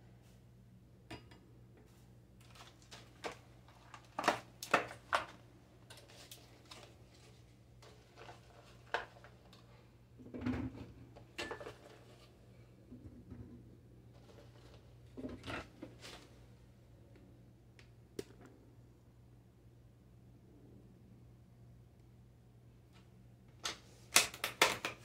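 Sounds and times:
faint low hum: 0.0s - 24.1s
kitchen items clattering on countertop: 2.5s - 12.3s.

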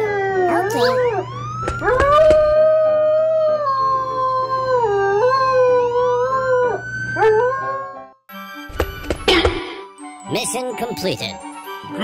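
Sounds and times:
dog howling: 0.0s - 8.0s.

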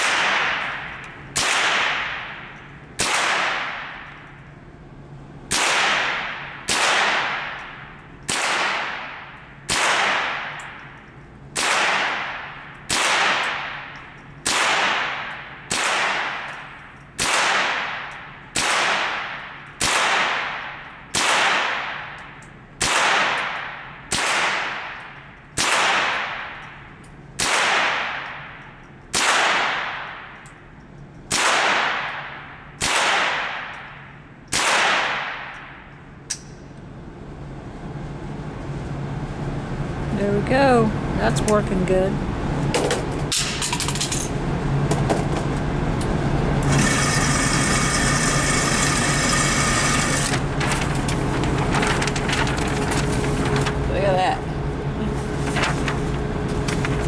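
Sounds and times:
rifle shots echoing indoors: 0.0s - 4.6s, 5.4s - 36.5s
ventilation hum: 0.0s - 57.0s.

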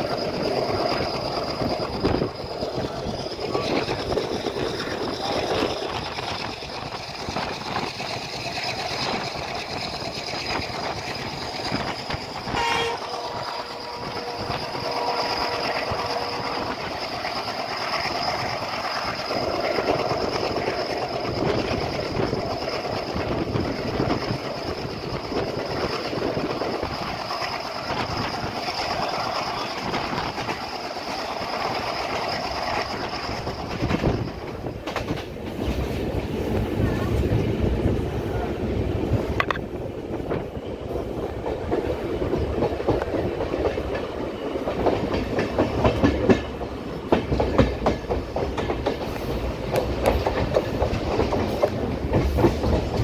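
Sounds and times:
train wheels rumbling on track: 0.0s - 53.0s
locomotive horn: 12.5s - 16.7s.

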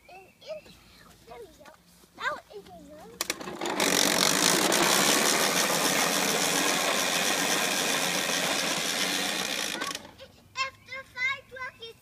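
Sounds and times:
plastic toy wheels rolling on asphalt: 3.2s - 10.2s.

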